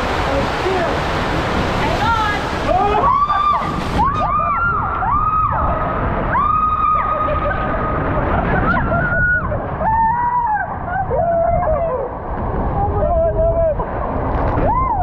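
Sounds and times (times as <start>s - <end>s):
rushing water: 0.0s - 15.0s
people screaming and whooping: 2.7s - 12.2s, 14.5s - 15.0s.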